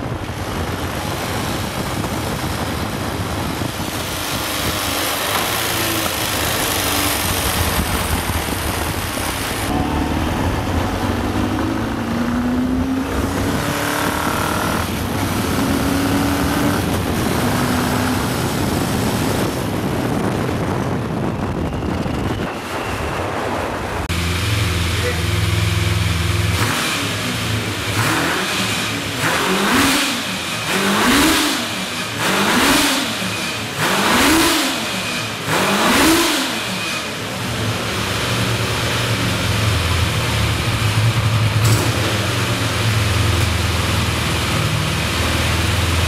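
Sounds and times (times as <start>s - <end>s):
wind noise on microphone: 0.0s - 24.2s
motorcycle engine accelerating: 0.0s - 46.0s.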